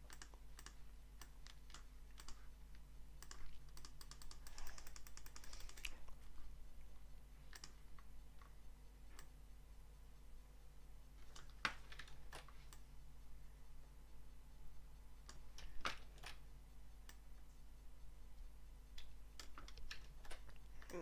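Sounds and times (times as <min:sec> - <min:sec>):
keyboard and mouse clicks: 0:00.0 - 0:06.4, 0:07.4 - 0:09.4, 0:11.2 - 0:12.9, 0:15.2 - 0:17.3, 0:18.9 - 0:21.0
steady low hum: 0:00.0 - 0:21.0.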